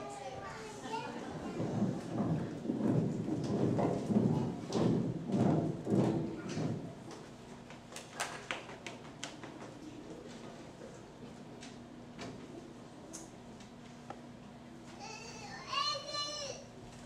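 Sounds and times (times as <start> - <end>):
children's feet thumping on stage: 1.3 - 7.3.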